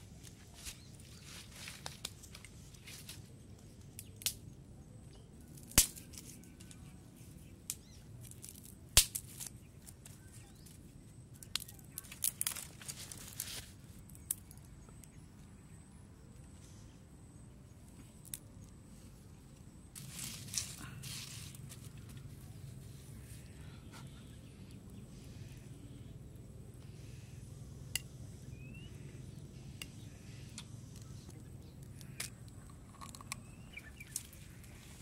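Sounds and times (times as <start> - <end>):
faint outdoor background: 0.0 - 35.0
dry sticks snapping: 1.6 - 4.6, 5.5 - 6.9, 7.6 - 10.8, 11.4 - 15.2, 30.6 - 34.4.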